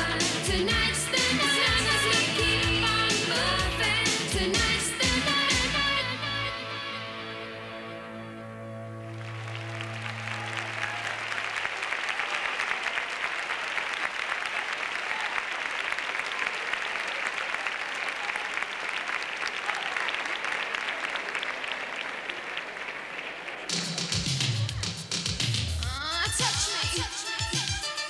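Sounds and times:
held music chord: 0:06.0 - 0:10.6
audience applauding: 0:09.0 - 0:25.8.

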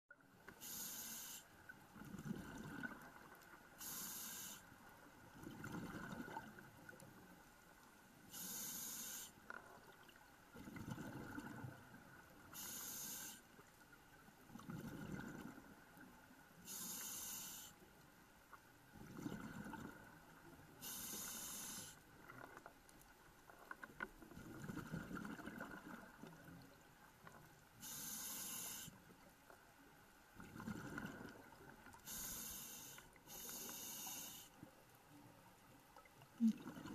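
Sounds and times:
regulator inhale hiss: 0:00.6 - 0:01.5, 0:03.8 - 0:04.7, 0:08.3 - 0:09.4, 0:12.5 - 0:13.5, 0:16.6 - 0:17.8, 0:20.8 - 0:22.0, 0:27.8 - 0:29.0, 0:32.0 - 0:34.6
exhaled bubbles rumbling: 0:14.5 - 0:15.7, 0:19.0 - 0:20.2, 0:24.4 - 0:26.6, 0:30.4 - 0:31.8, 0:36.3 - 0:36.9.

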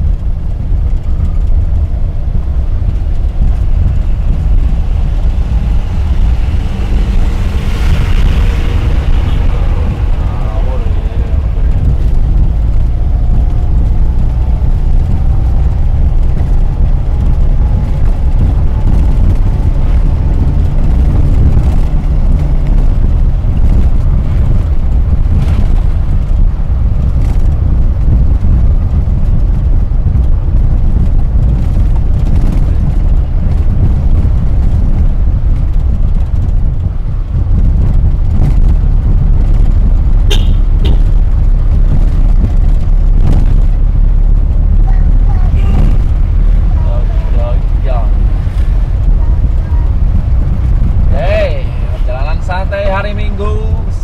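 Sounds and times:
road and wind noise: 0:00.0 - 0:54.0.

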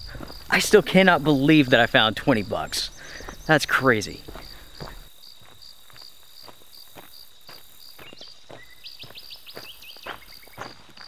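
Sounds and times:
insect trilling: 0:00.0 - 0:10.7
footsteps crunching on gravel: 0:00.0 - 0:11.0.

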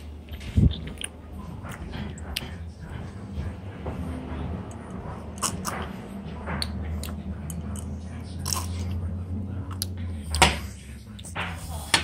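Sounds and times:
steady low hum: 0:00.0 - 0:12.0
person chewing: 0:00.6 - 0:02.6, 0:05.4 - 0:05.8, 0:06.6 - 0:08.9.

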